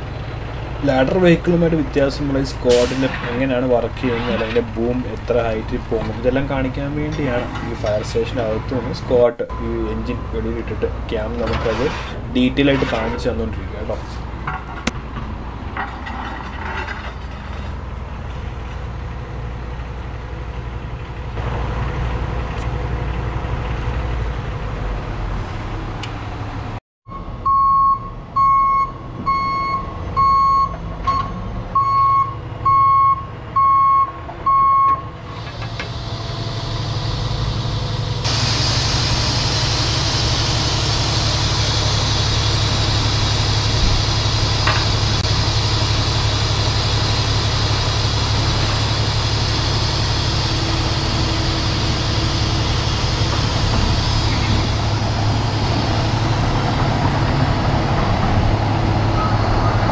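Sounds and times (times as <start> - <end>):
diesel engine idling: 0.0 - 14.9, 31.8 - 59.9
engine revving with hiss: 35.2 - 57.2.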